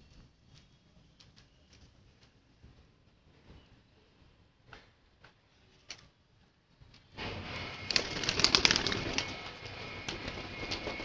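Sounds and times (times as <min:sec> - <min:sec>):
pigeon wings flapping: 0:07.8 - 0:11.0.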